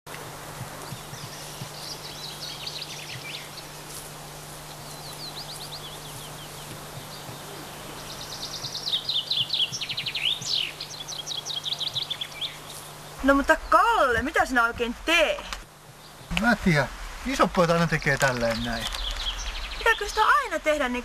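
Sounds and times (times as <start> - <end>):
songbirds trilling: 0.1 - 21.0
steady low hum: 0.1 - 21.0.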